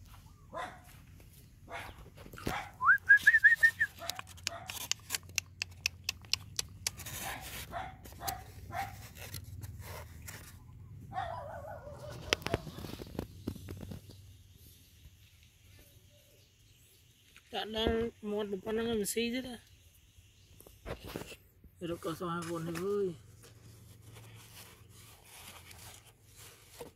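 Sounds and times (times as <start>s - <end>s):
puppy yips: 1.7s - 4.8s, 11.0s - 13.0s.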